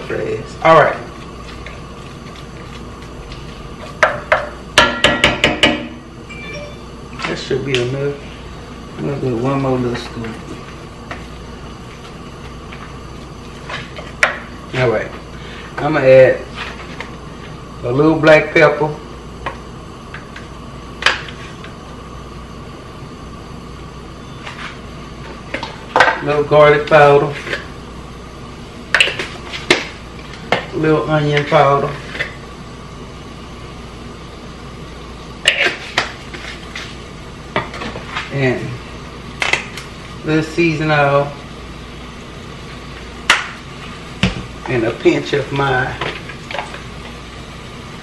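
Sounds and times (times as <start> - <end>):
steady background hum: 0.0 - 48.0
wooden spoon tapping metal skillet: 4.0 - 6.0.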